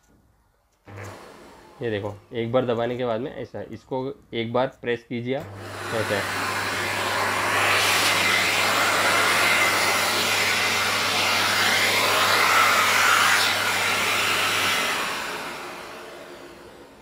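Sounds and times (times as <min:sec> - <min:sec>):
vacuum cleaner running: 0:00.8 - 0:02.8, 0:05.4 - 0:17.0.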